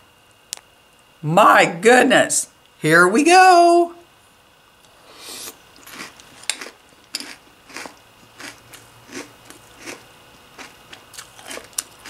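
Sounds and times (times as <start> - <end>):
person chewing crunchy cereal: 4.9 - 12.0.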